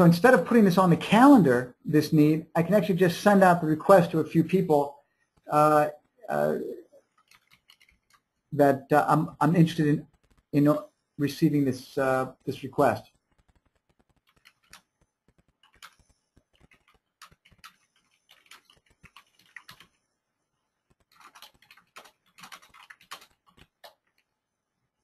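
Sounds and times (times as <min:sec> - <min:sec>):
computer keyboard typing: 0:07.0 - 0:08.4, 0:09.6 - 0:10.9, 0:13.0 - 0:24.5.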